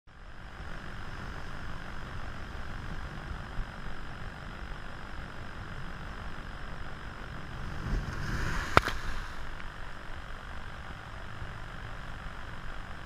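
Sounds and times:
surf breaking on rocks: 0:07.5 - 0:09.9.

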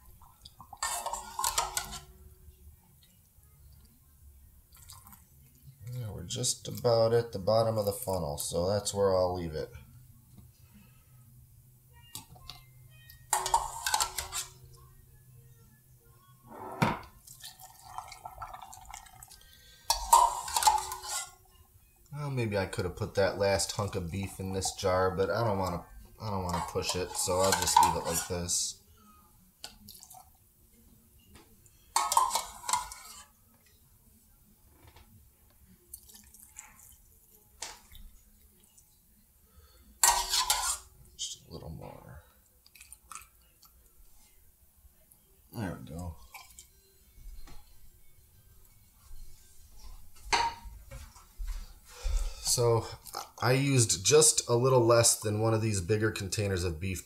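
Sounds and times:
liquid trickling into jar: 0:17.3 - 0:19.5.

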